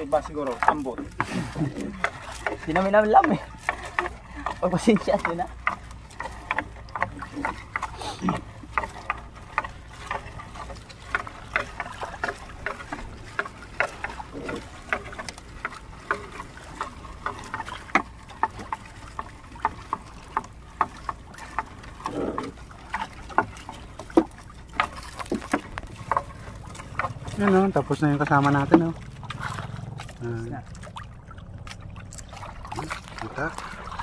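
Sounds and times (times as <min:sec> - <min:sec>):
net weights knocking on hull: 0:00.0 - 0:30.2
low rumble: 0:25.6 - 0:34.0.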